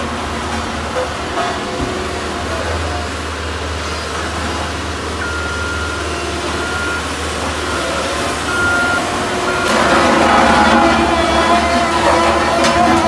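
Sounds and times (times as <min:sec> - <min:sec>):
diesel engine hum: 0:00.0 - 0:13.0
back-up alarm beeping: 0:05.2 - 0:12.5.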